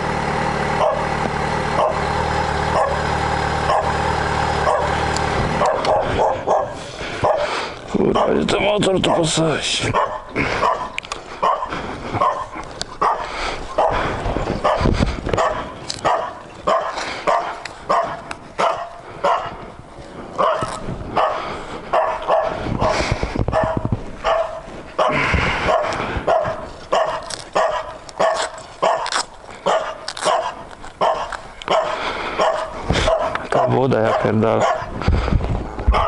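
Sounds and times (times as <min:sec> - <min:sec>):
dog barking: 0:00.8 - 0:01.1, 0:01.8 - 0:02.1, 0:02.7 - 0:04.0, 0:04.6 - 0:05.0, 0:05.6 - 0:07.5, 0:08.1 - 0:08.4, 0:09.1 - 0:14.0, 0:14.6 - 0:19.6, 0:20.4 - 0:34.9.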